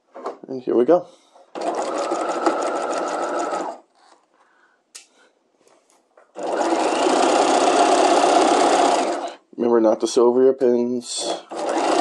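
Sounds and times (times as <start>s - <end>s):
sewing machine stitching: 1.5s - 3.8s, 6.4s - 9.4s, 11.2s - 12.0s.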